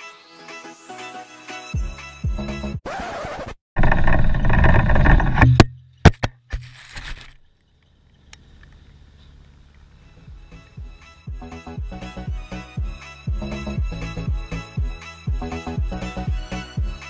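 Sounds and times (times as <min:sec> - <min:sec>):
cart rattling and rumbling: 0:03.8 - 0:05.7
camera hitting the ground: 0:03.8 - 0:07.5.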